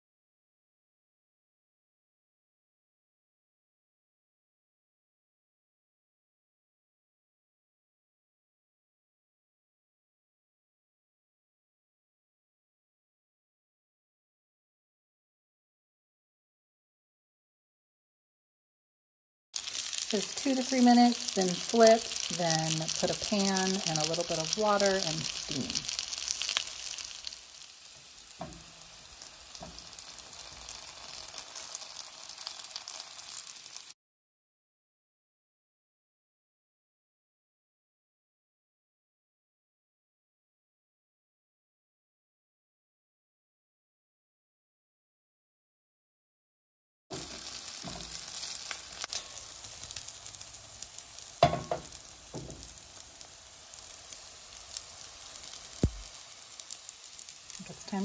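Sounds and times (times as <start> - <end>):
dumplings sizzling in oil: 19.6 - 34.0, 47.1 - 58.0
sharp knocks on pan: 51.4 - 52.6, 55.8 - 56.1.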